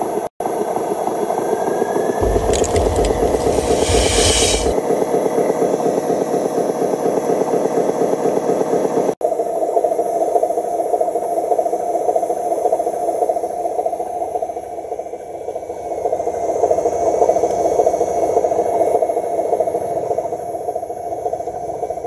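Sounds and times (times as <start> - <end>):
soil sliding hiss and rumble: 2.2 - 4.8
toy truck motor whirring: 2.2 - 4.8.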